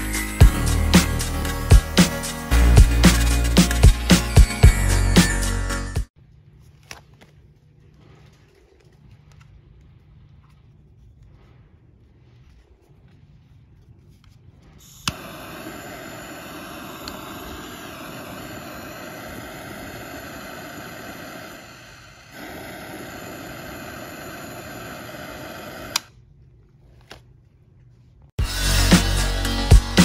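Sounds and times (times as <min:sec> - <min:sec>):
jet torch hissing: 0:14.7 - 0:26.1
piezo ignition click: 0:25.6 - 0:26.2.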